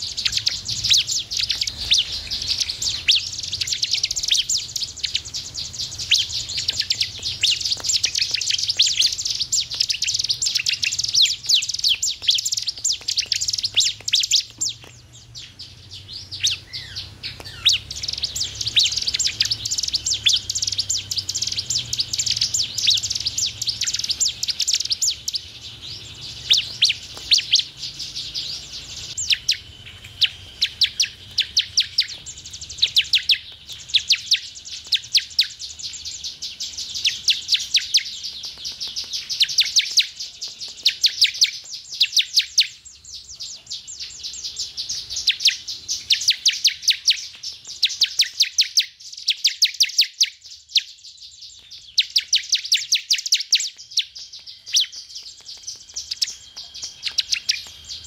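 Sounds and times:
bird singing high sharp chirps: 0:00.0 - 0:58.0.

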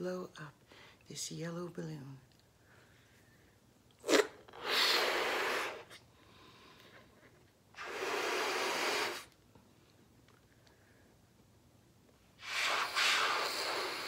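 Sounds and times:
person blowing up balloon: 0:04.0 - 0:06.0, 0:07.8 - 0:09.4, 0:12.4 - 0:14.0
faint inhale: 0:04.6 - 0:07.2.

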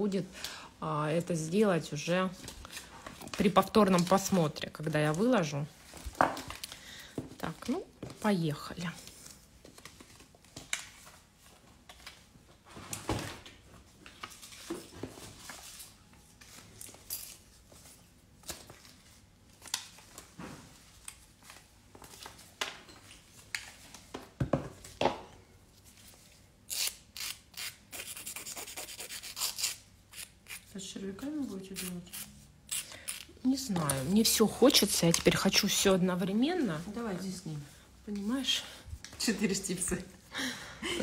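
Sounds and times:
fingers rubbing on nail tips: 0:26.7 - 0:30.6.

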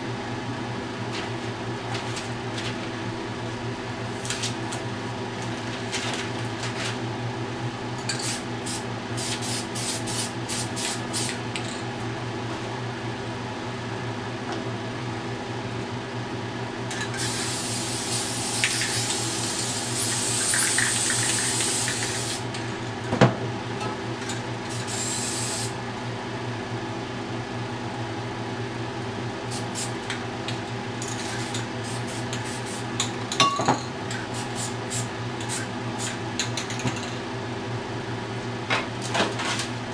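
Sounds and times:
steady background hum: 0:00.0 - 0:39.9
aerosol spray can hissing: 0:17.2 - 0:22.4, 0:24.8 - 0:25.7.

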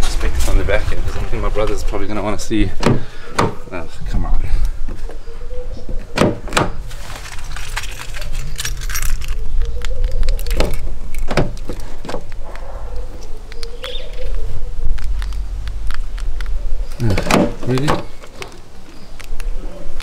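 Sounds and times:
keys jangling: 0:07.0 - 0:12.0
low steady rumble: 0:12.3 - 0:18.2
sharp clicks and knocks: 0:13.5 - 0:19.5.

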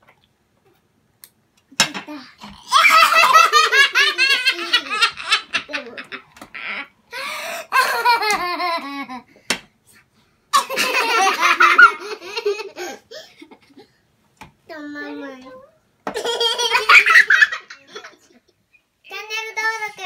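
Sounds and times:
children laughing: 0:02.4 - 0:09.3, 0:10.6 - 0:13.9, 0:16.1 - 0:18.5.

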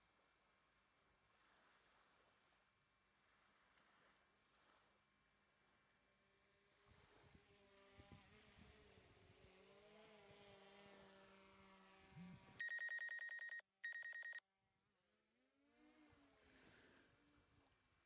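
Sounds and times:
trilling electronic ringtone: 0:12.6 - 0:14.4.

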